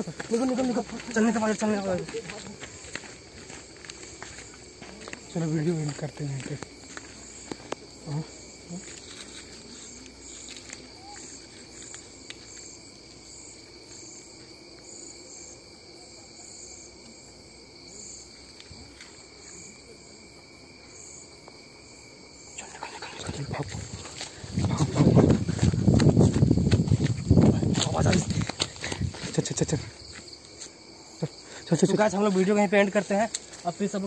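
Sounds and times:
rustling and footsteps: 0.0s - 15.0s, 22.7s - 30.9s
night insects trilling: 0.0s - 34.0s.

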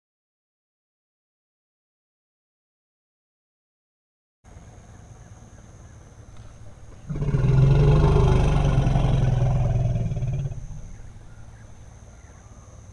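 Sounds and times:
elephant roaring: 6.4s - 11.8s.

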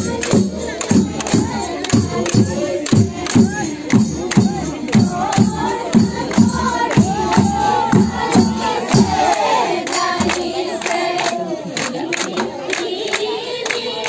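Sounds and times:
dhol drum beats: 0.0s - 11.1s
women singing: 0.0s - 14.0s.

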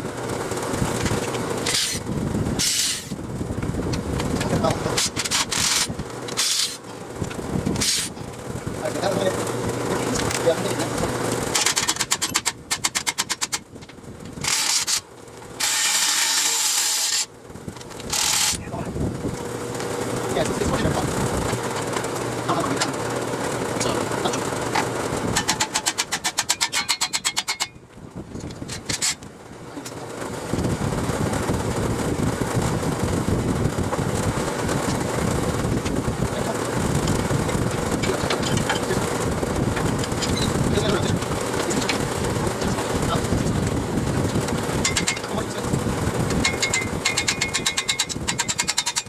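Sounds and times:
cordless power ratchet running: 0.0s - 27.8s, 30.5s - 49.0s
fan rushing air: 0.0s - 49.0s
socket ratchet clicking: 46.4s - 49.0s.

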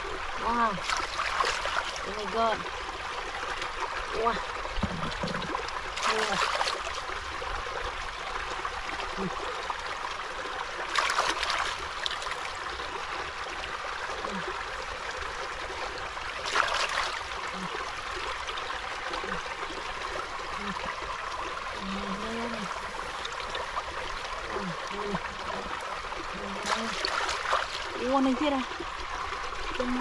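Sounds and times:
shallow water trickling: 0.0s - 30.0s
hands splashing in water: 26.5s - 27.9s.

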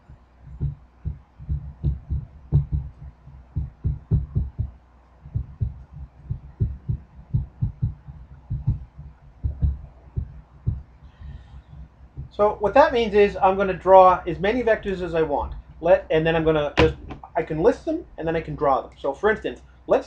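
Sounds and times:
marker thudding on whiteboard: 16.8s - 17.3s.

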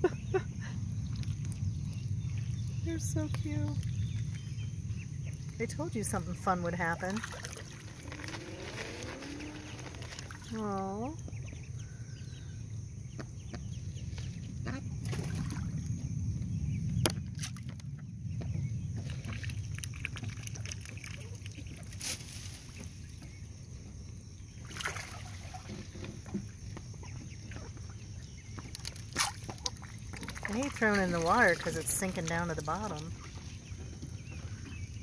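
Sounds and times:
steady low rumble: 0.0s - 24.7s.

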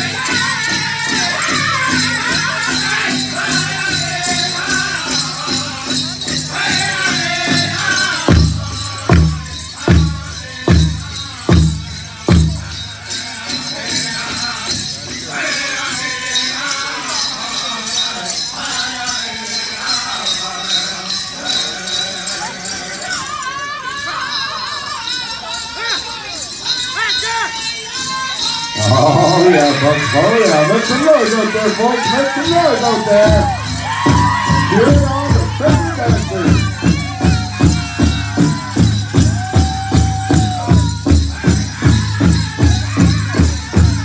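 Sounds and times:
drum group singing: 0.0s - 25.4s, 27.5s - 44.0s
bells jingling: 0.0s - 44.0s
big drum steady beat: 8.0s - 13.0s, 32.4s - 44.0s.

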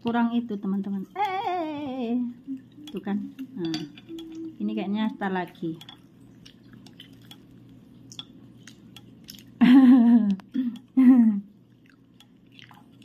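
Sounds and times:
person's voice: 0.0s - 5.9s
low steady hum: 0.0s - 13.0s
chopsticks ticking on pan: 2.8s - 4.4s, 8.1s - 9.2s.

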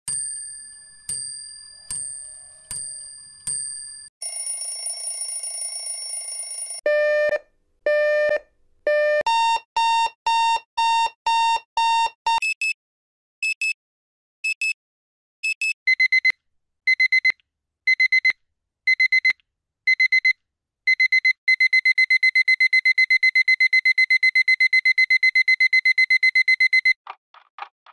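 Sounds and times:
high dings: 0.1s - 4.1s
continuous bell ringing: 0.1s - 6.8s.

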